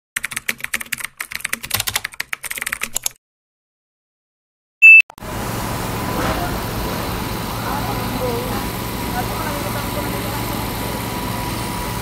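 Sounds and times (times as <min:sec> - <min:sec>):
short high beep: 0:04.8 - 0:05.2.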